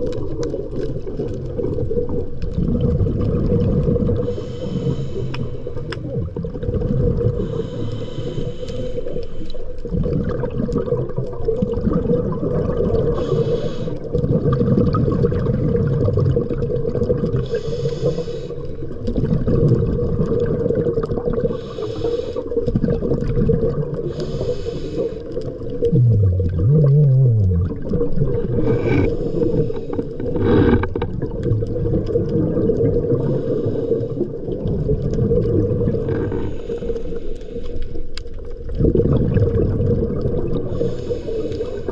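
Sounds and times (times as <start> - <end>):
exhaled bubbles rumbling: 0.0 - 41.9
regulator inhale hiss: 4.2 - 6.1, 7.3 - 9.8, 13.1 - 14.1, 17.4 - 18.9, 21.5 - 22.7, 24.0 - 25.4, 28.5 - 31.0, 33.1 - 34.4, 36.2 - 38.2, 40.6 - 41.9.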